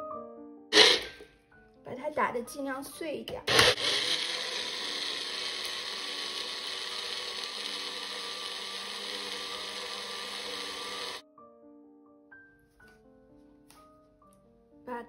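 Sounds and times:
blender motor grinding: 0.7s - 1.2s, 3.5s - 11.2s.

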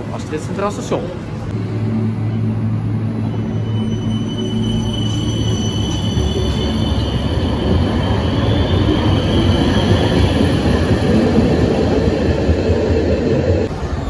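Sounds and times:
steel wheels rumbling on rail: 0.0s - 14.0s
high thin wheel squeal: 3.3s - 10.7s.

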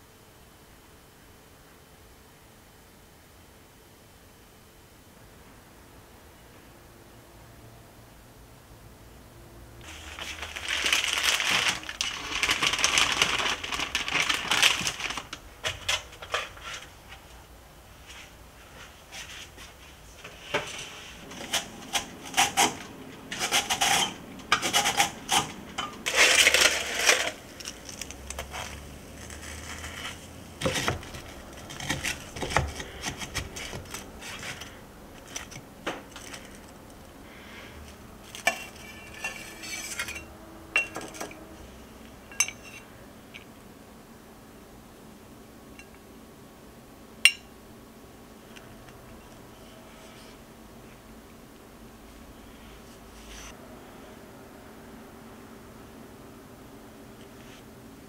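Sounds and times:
steady hissing noise: 0.0s - 31.7s, 32.3s - 58.0s
cookware and dishes clinking: 38.4s - 41.4s, 42.3s - 42.9s, 47.2s - 47.5s.

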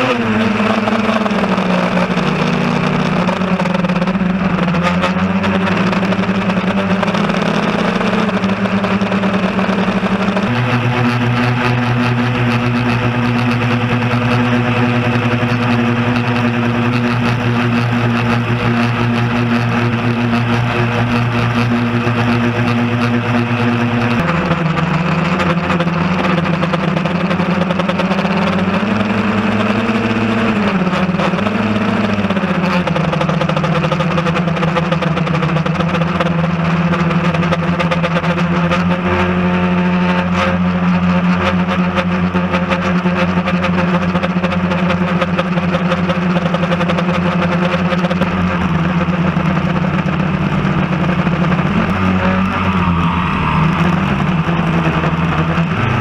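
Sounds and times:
drone motors buzzing: 0.0s - 36.0s, 48.2s - 56.0s.

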